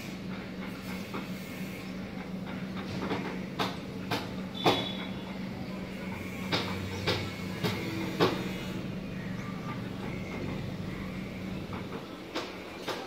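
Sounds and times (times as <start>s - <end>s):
low city hum: 0.0s - 13.0s
sharp knocks: 3.0s - 5.0s.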